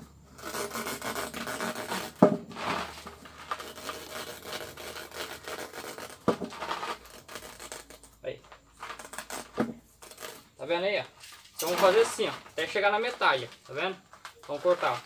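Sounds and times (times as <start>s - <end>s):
knife scraping through rubber: 0.1s - 10.6s, 14.4s - 15.0s.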